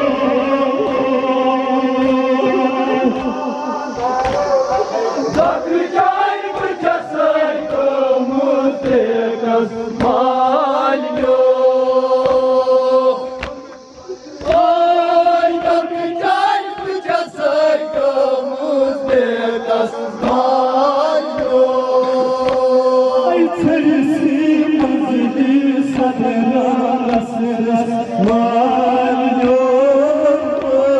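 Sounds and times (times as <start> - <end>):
men chanting through loudspeaker: 0.0 - 30.9
chest beating slaps: 2.0 - 2.4, 3.1 - 5.6, 12.2 - 12.6, 13.3 - 14.7.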